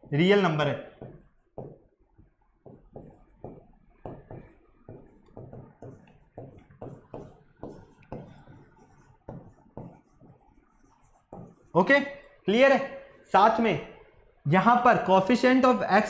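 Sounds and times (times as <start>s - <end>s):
pen scratching on a board: 1.0s - 1.9s, 2.6s - 11.8s.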